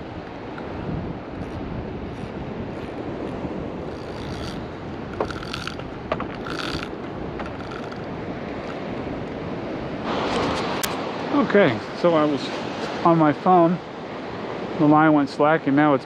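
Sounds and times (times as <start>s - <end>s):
wind on microphone: 0.0s - 11.0s
mechanical clicks and whirs: 1.4s - 8.0s.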